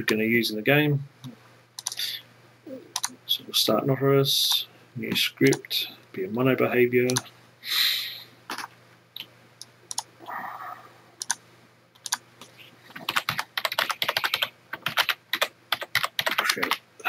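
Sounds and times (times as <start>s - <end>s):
computer keyboard typing: 1.8s - 2.0s, 2.9s - 3.2s, 9.9s - 10.1s, 11.2s - 11.4s, 12.0s - 12.2s, 12.9s - 16.8s.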